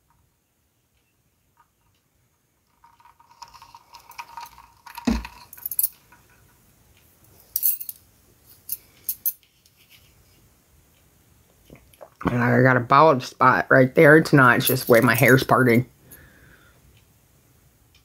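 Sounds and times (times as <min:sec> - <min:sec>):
handling clinks and rattles: 0:02.7 - 0:06.5, 0:07.4 - 0:09.9, 0:14.6 - 0:15.4.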